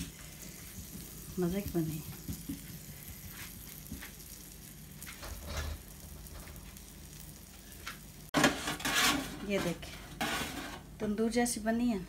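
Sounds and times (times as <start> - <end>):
dough sizzling on a griddle: 0.0 - 11.2
hand patting dough: 0.9 - 4.4.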